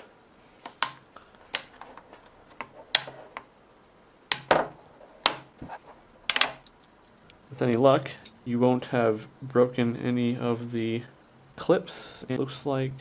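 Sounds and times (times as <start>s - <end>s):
plastic clips snapping: 0.7s - 3.2s, 4.3s - 5.6s, 6.3s - 7.4s.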